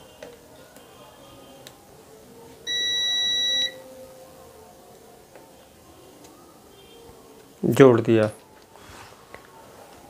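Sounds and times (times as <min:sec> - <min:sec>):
electronic beep: 0:02.7 - 0:03.8.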